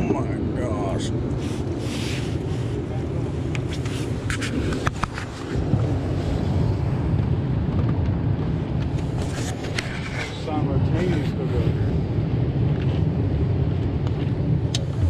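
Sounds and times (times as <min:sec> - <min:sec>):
steady low rumble: 0:00.0 - 0:15.0
clothing rubbing on microphone: 0:01.4 - 0:06.4, 0:09.0 - 0:10.5.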